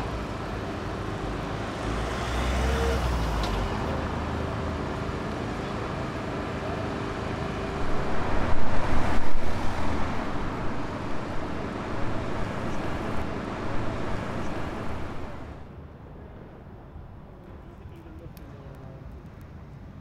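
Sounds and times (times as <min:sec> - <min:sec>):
vehicle rushing past: 0:07.7 - 0:15.6.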